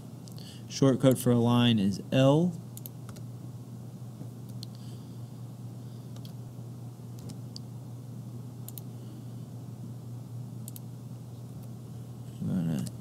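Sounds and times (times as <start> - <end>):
steady low hum: 0.0 - 13.0
computer mouse clicks: 2.8 - 3.2, 6.1 - 6.4, 7.2 - 7.7, 8.7 - 8.9, 10.6 - 10.8.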